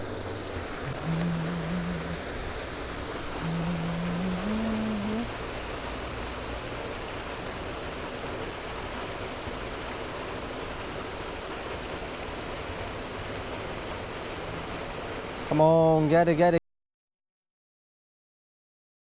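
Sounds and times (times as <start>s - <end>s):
creek water rushing: 0.0s - 16.5s.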